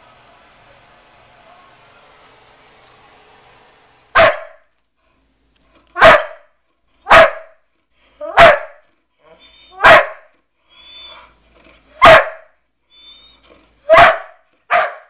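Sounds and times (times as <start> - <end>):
dog barking: 4.1 - 4.7, 6.0 - 7.6, 8.2 - 8.8, 9.7 - 10.3, 12.0 - 12.6, 13.9 - 15.0.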